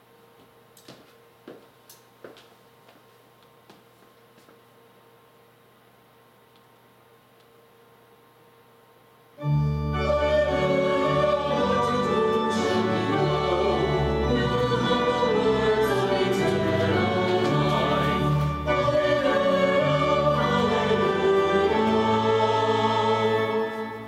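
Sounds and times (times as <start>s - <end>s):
organ chords with deep bass: 9.4s - 24.0s
person singing: 9.9s - 24.0s.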